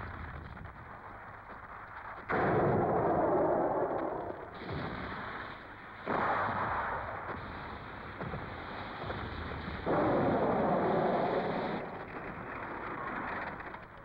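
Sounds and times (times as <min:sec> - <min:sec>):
cannon fire blasts: 0:02.2 - 0:13.2.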